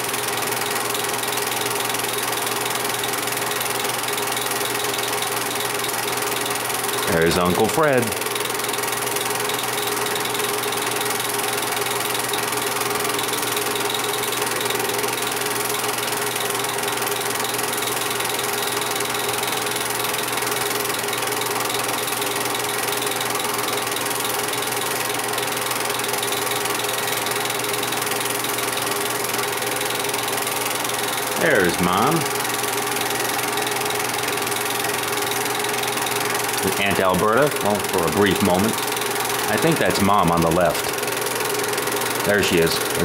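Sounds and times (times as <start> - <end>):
film projector whirring and clattering: 0.0 - 43.0.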